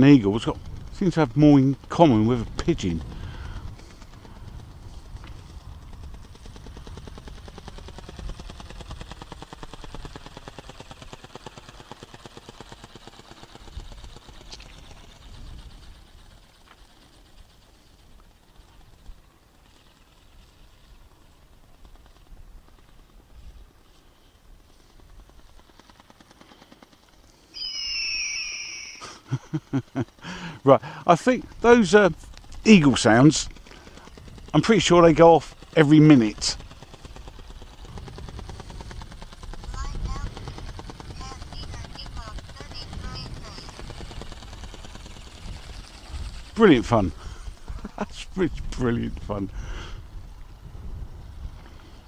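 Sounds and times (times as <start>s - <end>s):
wind rumble on microphone: 0.0s - 9.1s, 13.6s - 16.4s, 37.7s - 52.0s
toy bird wings flapping: 0.0s - 52.0s
recorded eagle screech: 27.5s - 29.2s.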